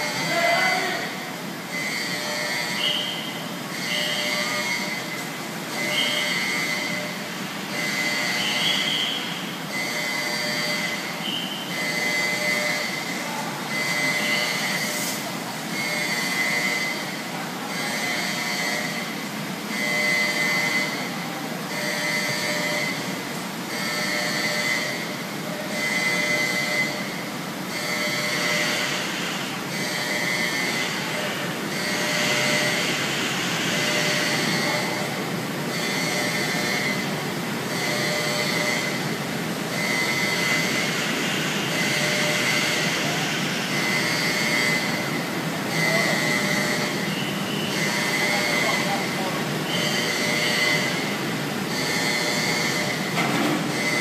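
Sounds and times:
high metallic squeals: 0:01.7 - 0:07.0, 0:07.7 - 0:13.2
long warning beeps: 0:01.7 - 0:54.0.

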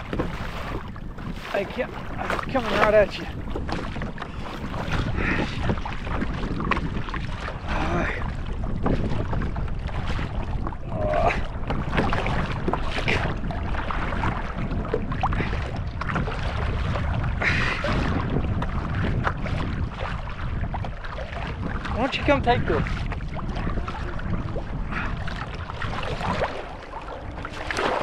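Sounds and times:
water lapping against kayak hull: 0:00.0 - 0:28.0
water splashes: 0:00.0 - 0:28.0
wind buffeting microphone: 0:00.0 - 0:28.0.

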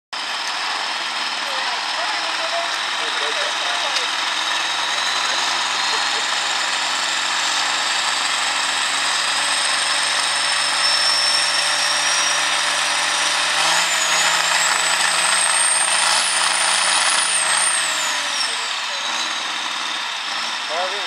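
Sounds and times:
tractor diesel engine running hard: 0:00.1 - 0:21.0.

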